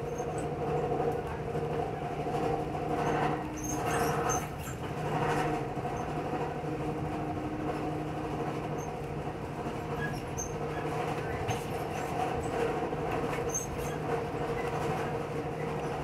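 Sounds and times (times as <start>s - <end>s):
train rumbling from inside coach: 0.0s - 16.0s.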